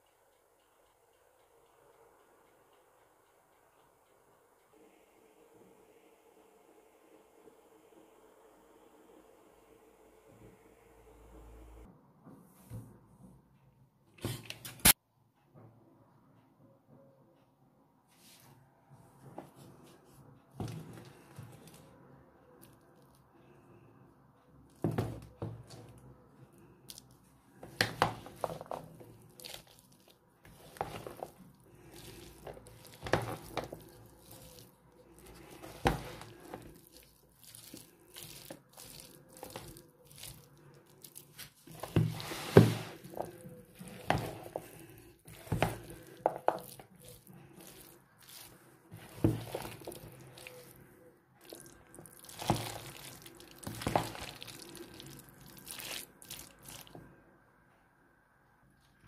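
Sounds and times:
wet squelches stirring salad: 0:24.5 - 0:57.0.

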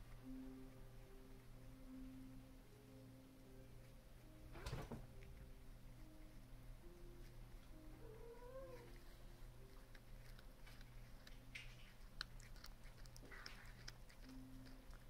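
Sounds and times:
cat chewing paper tissue: 0:05.1 - 0:15.0
cat meowing softly: 0:08.0 - 0:09.0.

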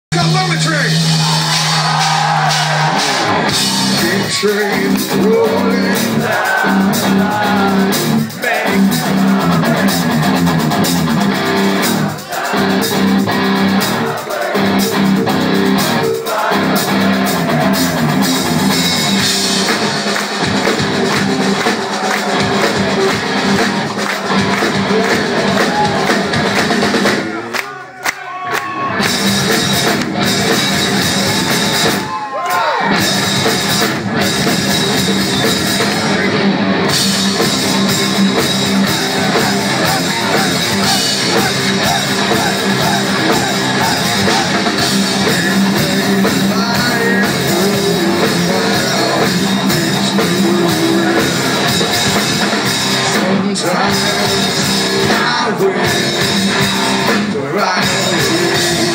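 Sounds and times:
hard rock band playing live: 0:00.1 - 0:27.6, 0:28.8 - 0:58.9
person singing: 0:03.5 - 0:10.4, 0:37.0 - 0:58.9.

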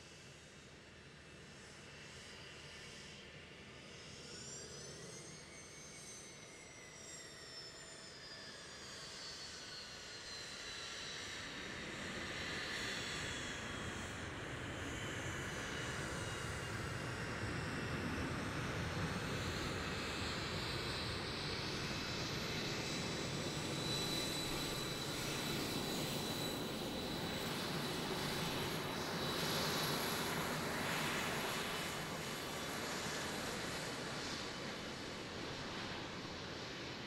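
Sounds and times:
jet engines running: 0:11.6 - 0:37.0
high engine whine: 0:17.1 - 0:37.0.

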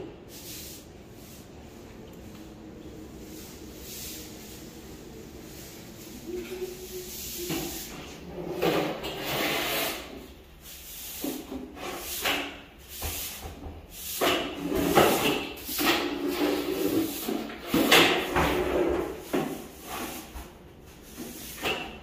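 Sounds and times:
broom sweeping tiled floor: 0:00.0 - 0:22.0
dustpan scraping on tiles: 0:05.5 - 0:22.0.

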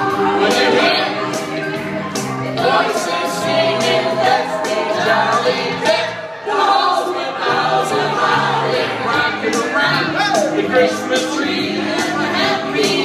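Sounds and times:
karaoke backing track: 0:00.0 - 0:13.0
people singing into microphones: 0:00.0 - 0:13.0.

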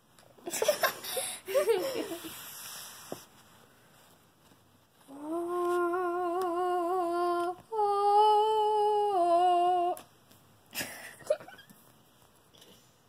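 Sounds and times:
child humming: 0:05.1 - 0:10.0.

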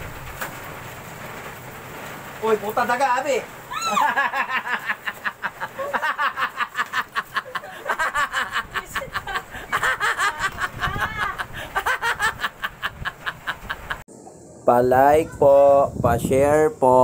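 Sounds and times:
man laughing hard: 0:03.7 - 0:14.0.

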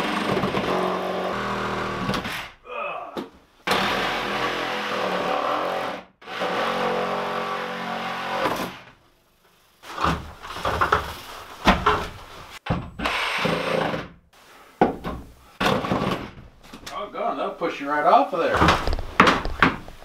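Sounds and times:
power drill boring through wood: 0:00.0 - 0:02.5, 0:03.7 - 0:08.8, 0:13.0 - 0:14.1.

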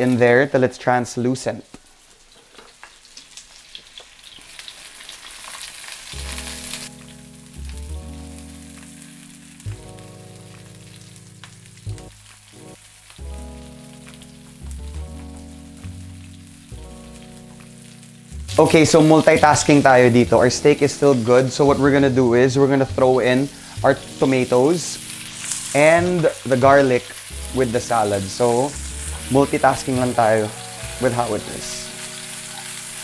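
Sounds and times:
steak sizzling in oil: 0:01.9 - 0:33.0
background music low notes: 0:05.8 - 0:33.0.

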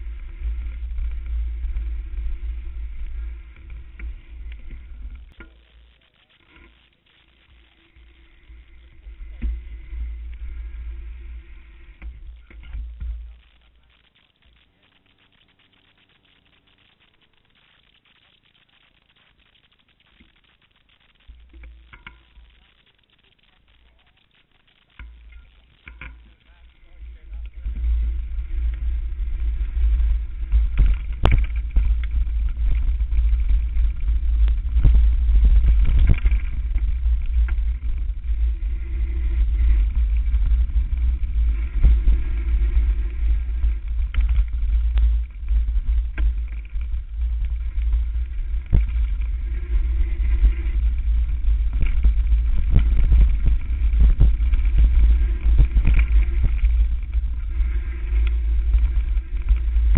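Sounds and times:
wind rumble on microphone: 0:00.0 - 0:05.4, 0:07.8 - 0:13.5, 0:25.8 - 0:59.9
bike knocking and rattling: 0:00.0 - 0:05.7, 0:07.5 - 0:15.9, 0:21.2 - 0:59.9.

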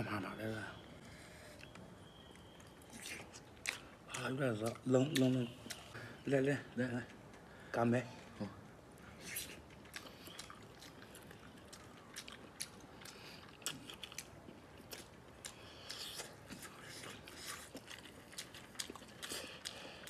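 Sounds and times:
mouth clicks and smacks: 0:01.5 - 0:06.3
person biting and chewing: 0:02.6 - 0:05.9, 0:09.2 - 0:20.0.

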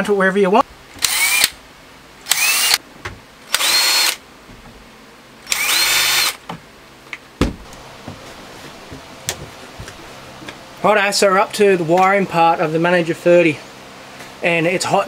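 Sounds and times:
cordless drill whining: 0:01.0 - 0:01.5, 0:02.3 - 0:02.8, 0:03.5 - 0:04.2, 0:05.5 - 0:06.4.

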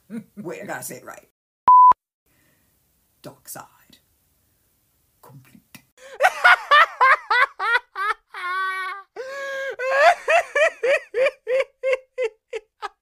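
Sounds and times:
high-pitched cackling laugh: 0:06.2 - 0:09.2, 0:09.8 - 0:13.0.

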